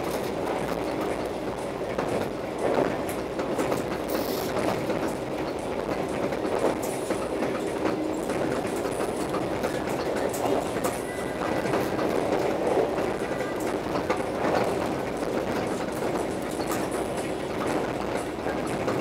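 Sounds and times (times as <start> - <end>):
train wheels rumbling on track: 0.0 - 19.0.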